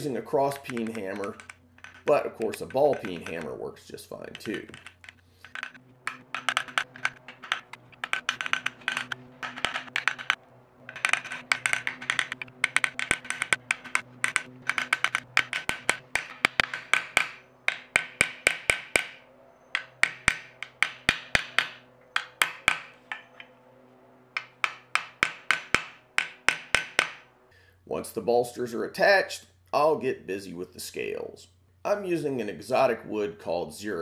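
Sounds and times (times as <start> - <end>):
hammer tapping on metal pins: 0.0 - 3.6, 4.2 - 23.5, 24.4 - 27.3.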